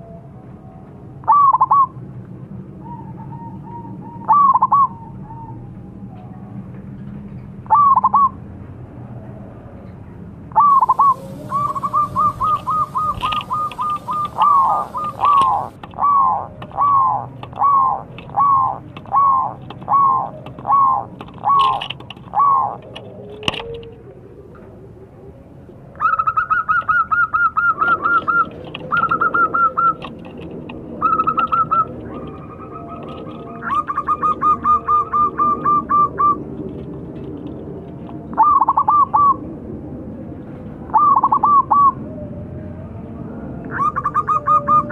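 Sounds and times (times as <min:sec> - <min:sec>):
dove cooing: 0:01.2 - 0:02.0, 0:02.8 - 0:05.6, 0:07.7 - 0:08.4, 0:10.5 - 0:39.5, 0:40.9 - 0:42.3, 0:43.6 - 0:44.9.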